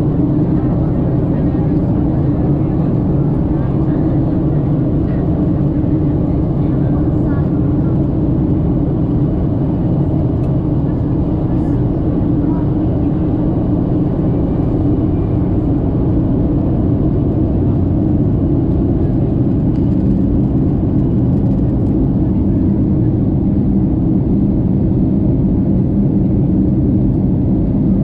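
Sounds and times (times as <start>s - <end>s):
jet airliner cabin rumble: 0.0s - 28.0s.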